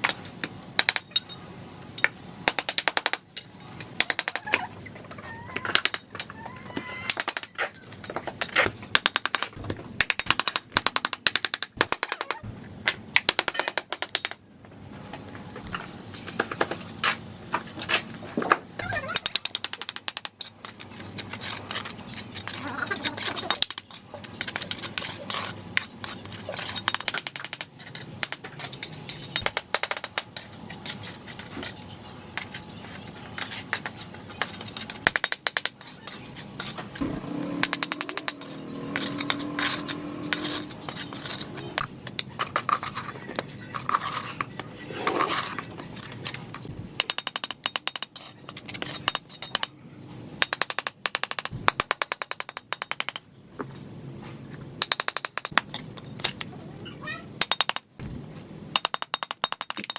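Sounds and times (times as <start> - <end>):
trowel scraping mortar on bricks: 20.4 - 27.0, 32.4 - 46.4
bricks knocking and clinking: 57.4 - 59.9.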